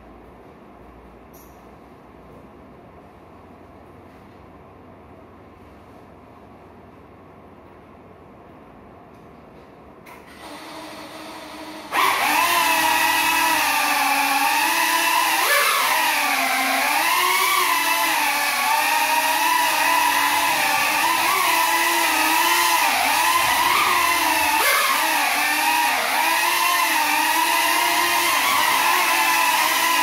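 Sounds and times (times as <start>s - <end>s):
drone motors whining: 10.4s - 30.0s.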